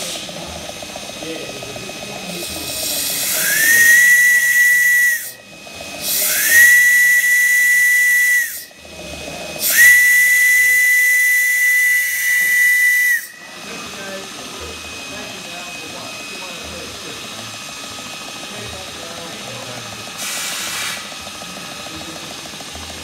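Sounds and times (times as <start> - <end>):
steam hissing: 0.0 - 23.0
steam whistle blasts: 2.9 - 8.8, 9.6 - 14.1.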